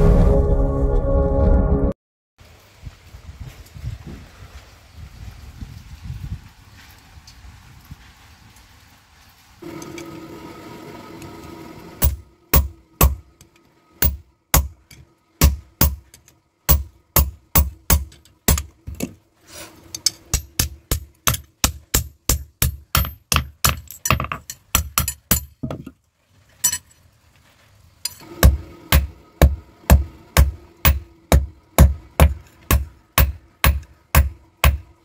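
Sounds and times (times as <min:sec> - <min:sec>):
hammer striking hot steel on anvil: 0:12.0 - 0:13.3, 0:14.0 - 0:18.7, 0:20.0 - 0:25.5, 0:28.1 - 0:34.9.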